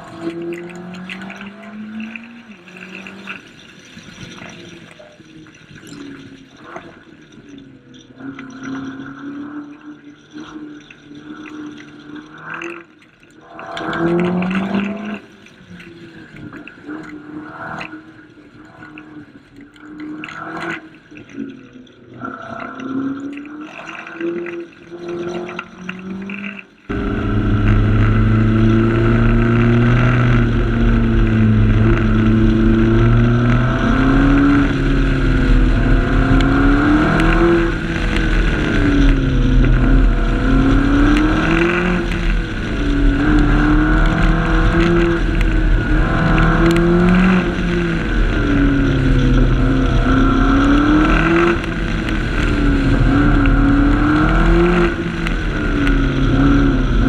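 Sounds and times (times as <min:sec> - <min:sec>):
sports car engine revving: 0:21.8 - 0:57.0.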